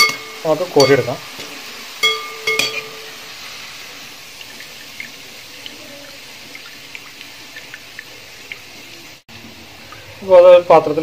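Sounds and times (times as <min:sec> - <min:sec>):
hot oil sizzling and popping: 0:00.0 - 0:11.0
oil dripping into pan: 0:04.3 - 0:09.0.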